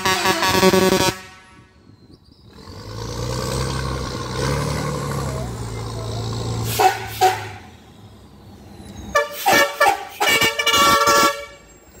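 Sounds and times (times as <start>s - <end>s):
vehicle horn toots: 0.0s - 1.8s, 6.7s - 7.7s, 9.1s - 11.7s
low engine hum: 1.9s - 9.1s.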